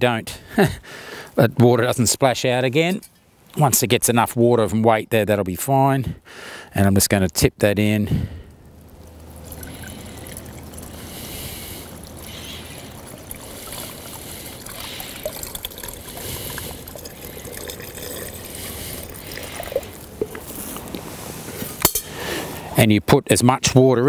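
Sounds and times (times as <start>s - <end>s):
water pouring into a water bag: 8.3s - 21.0s.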